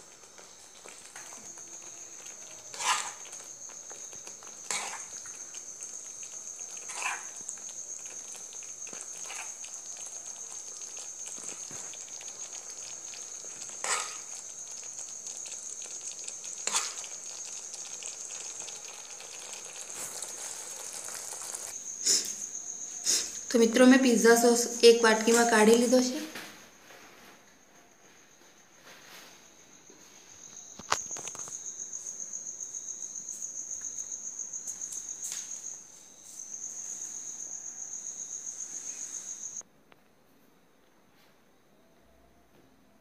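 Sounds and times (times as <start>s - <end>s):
sauce sizzling and bubbling: 0.0s - 23.5s, 31.2s - 39.6s
spatula scraping pan: 2.7s - 3.4s, 4.4s - 5.2s, 6.7s - 7.5s, 13.6s - 14.4s.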